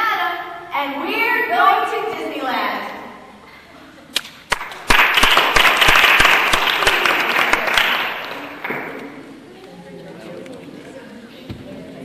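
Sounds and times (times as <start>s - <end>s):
hands clapping loudly nearby: 4.2s - 9.1s
audience applauding: 4.5s - 8.7s.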